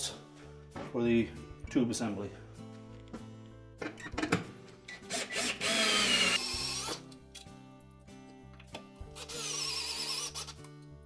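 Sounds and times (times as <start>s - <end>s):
cordless drill motor whining: 5.1s - 7.0s.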